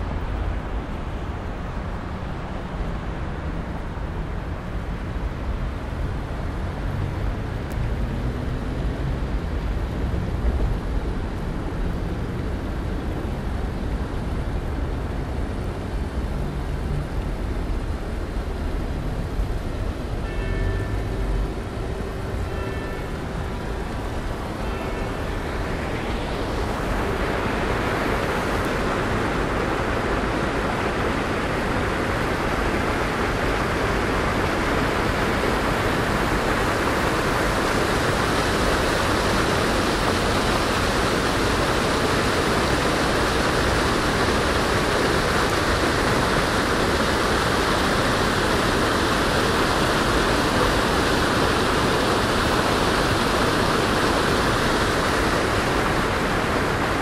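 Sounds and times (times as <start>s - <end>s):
water gushing into a canal: 21.0s - 57.0s.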